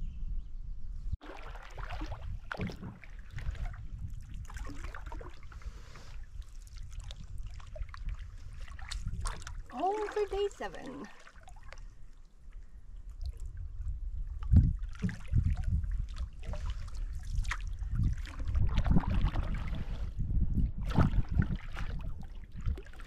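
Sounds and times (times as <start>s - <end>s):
wind rumble on microphone: 0.0s - 10.4s, 11.7s - 23.0s
canoe paddling: 1.2s - 13.3s, 14.4s - 20.1s.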